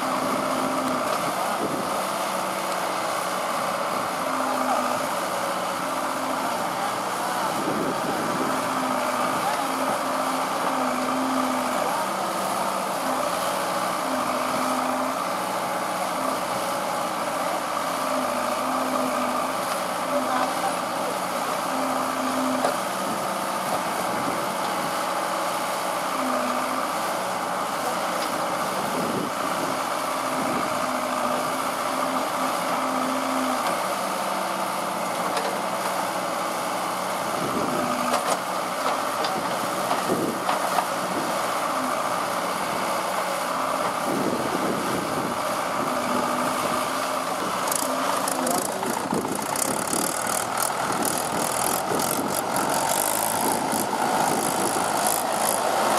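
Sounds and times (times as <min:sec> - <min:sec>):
backhoe loader diesel engine running: 0:00.0 - 0:55.9
tractor diesel engine running: 0:00.0 - 0:55.9.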